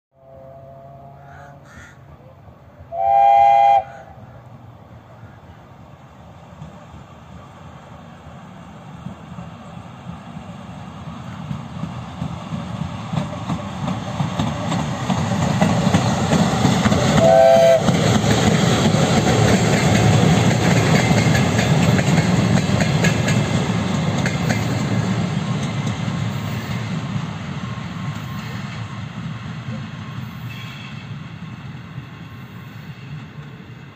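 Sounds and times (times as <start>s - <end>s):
train horn blast: 0.1s - 1.7s, 2.9s - 4.3s, 17.2s - 18.0s
train wheels rumbling on rails: 2.7s - 33.9s.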